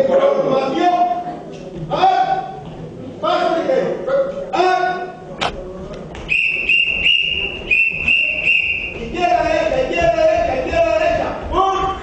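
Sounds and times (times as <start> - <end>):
voices: 0.0 - 12.0
whistle short blasts: 6.3 - 9.0.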